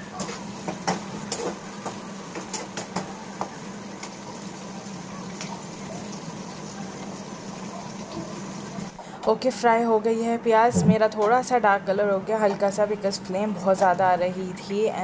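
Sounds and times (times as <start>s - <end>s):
onions sizzling in hot oil: 0.1s - 8.9s
steady low hum: 10.6s - 11.2s.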